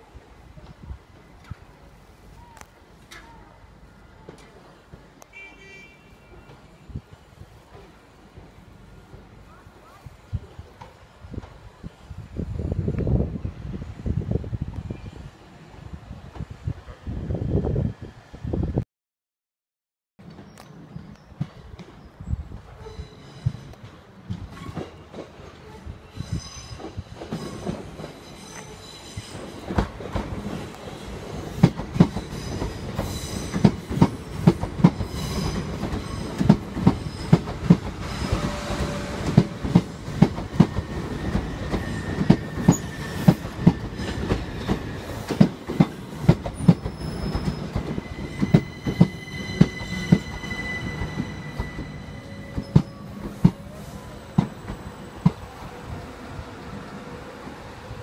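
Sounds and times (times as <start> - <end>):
high wheel squeal: 40.8 - 45.3, 46.6 - 55.2.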